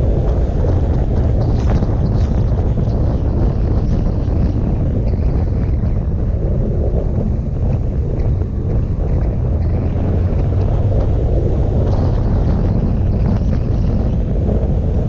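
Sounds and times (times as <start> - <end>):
motorcycle engine and tyres: 0.0 - 15.0
wind rushing over microphone: 0.0 - 15.0.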